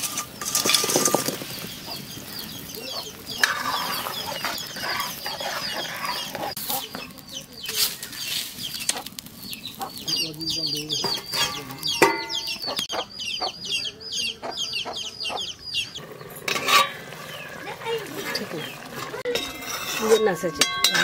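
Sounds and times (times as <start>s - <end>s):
food tumbling into curry: 0.0s - 7.1s
chickens clucking: 0.0s - 19.4s
ladle clinking against pan: 11.0s - 12.5s, 19.2s - 21.0s.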